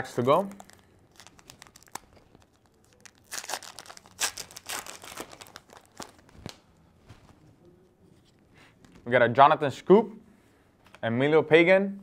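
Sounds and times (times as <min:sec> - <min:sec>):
card pack wrapper tearing and crinkling: 0:00.5 - 0:06.6.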